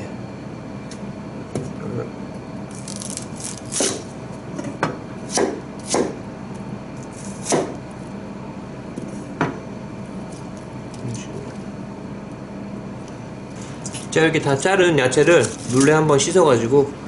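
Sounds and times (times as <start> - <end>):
knife slicing onion: 2.8 - 4.1, 5.2 - 6.2, 7.0 - 7.8.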